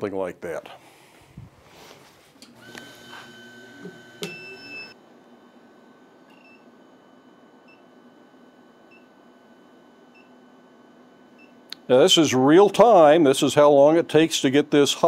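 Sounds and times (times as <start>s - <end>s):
induction forge high whine: 1.4s - 14.9s
electronic beep: 4.2s - 5.0s.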